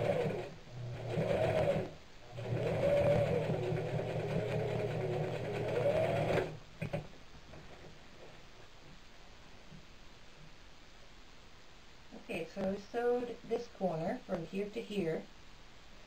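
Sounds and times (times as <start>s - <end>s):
sewing machine stitching: 0.0s - 7.0s.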